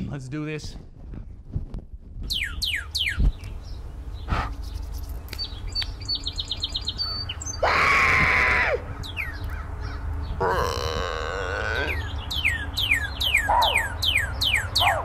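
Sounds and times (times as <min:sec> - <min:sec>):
bird whistling notes: 0:02.3 - 0:03.5, 0:11.9 - 0:15.0
bird chips: 0:04.2 - 0:07.4
harsh bird call: 0:07.0 - 0:15.0.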